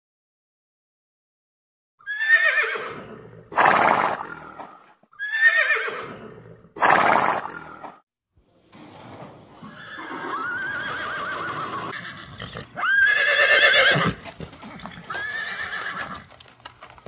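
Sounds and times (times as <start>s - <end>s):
horse whinnying: 2.0s - 7.9s, 9.6s - 16.3s.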